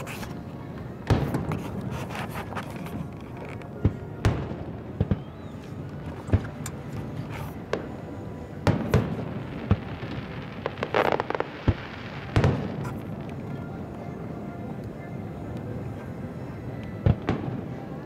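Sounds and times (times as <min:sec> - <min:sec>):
fireworks booming: 0:01.0 - 0:01.9, 0:08.6 - 0:13.3
crackling pops: 0:08.6 - 0:13.5.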